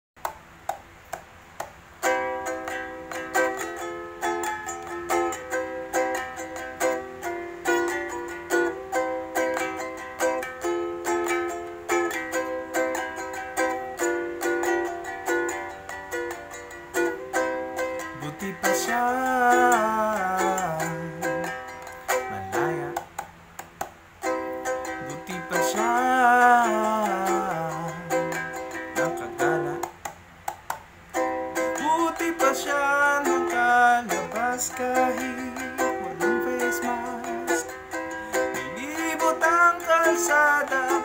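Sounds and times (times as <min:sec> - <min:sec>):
ukulele notes and strummed chords: 0:00.2 - 0:41.0
man singing: 0:18.0 - 0:23.2, 0:24.9 - 0:30.0, 0:31.6 - 0:41.0.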